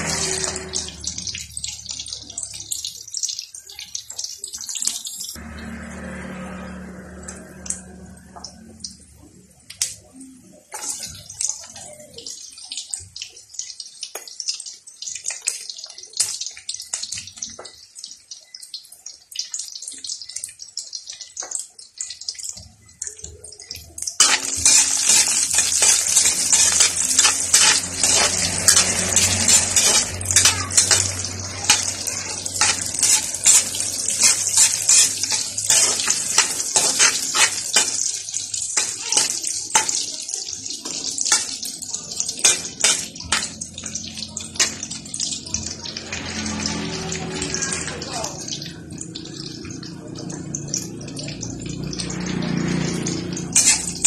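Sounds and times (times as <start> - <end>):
metal ladle scraping wok: 0.0 - 1.4, 5.4 - 8.5, 24.2 - 40.0, 40.8 - 47.9, 52.1 - 54.0
garlic sizzling in hot oil: 0.0 - 54.0.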